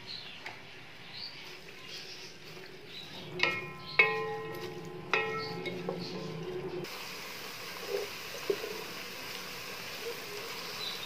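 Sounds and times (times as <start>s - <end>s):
spatula scraping pot: 2.2s - 6.9s
spatula knocking on pot: 3.3s - 6.4s
onions sizzling in hot oil: 6.8s - 11.0s.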